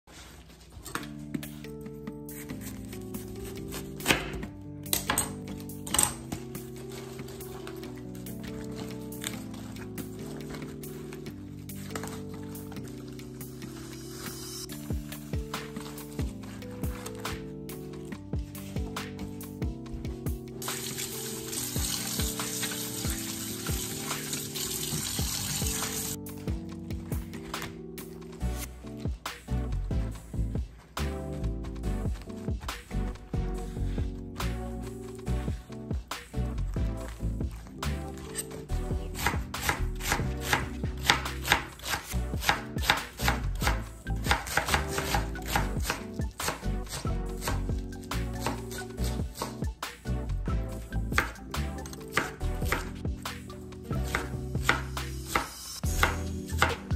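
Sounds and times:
background music with beat: 0:01.0 - 0:56.9
knife chopping cabbage on board: 0:03.4 - 0:05.1, 0:39.2 - 0:47.7, 0:48.4 - 0:49.6, 0:52.0 - 0:52.9, 0:54.0 - 0:56.8
leaves rinsed by hand: 0:20.6 - 0:26.2
tap water running into sink: 0:20.6 - 0:26.2.

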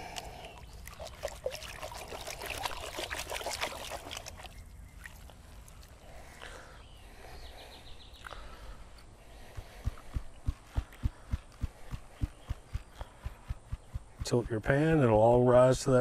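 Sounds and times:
water sloshing and splashing: 0:00.0 - 0:06.2.

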